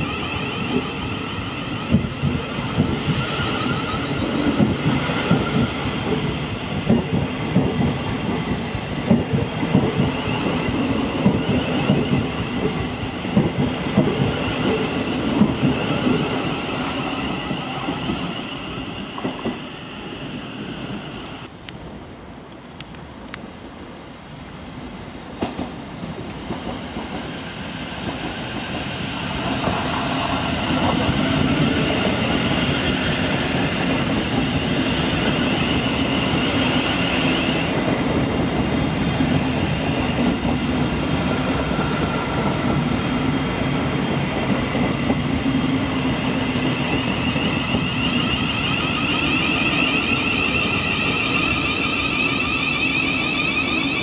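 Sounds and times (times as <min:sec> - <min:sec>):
high-pitched train whine: 0:00.0 - 0:21.7, 0:25.8 - 0:54.0.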